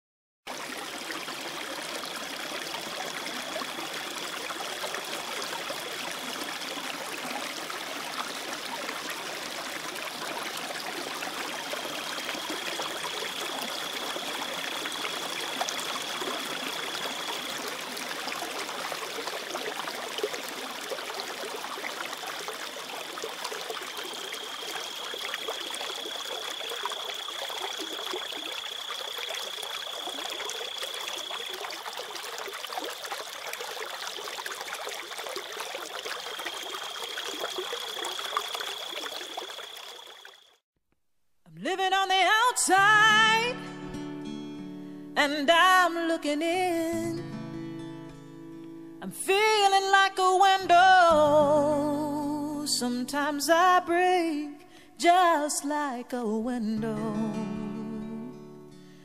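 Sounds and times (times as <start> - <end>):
river water running over stones: 0.5 - 40.6.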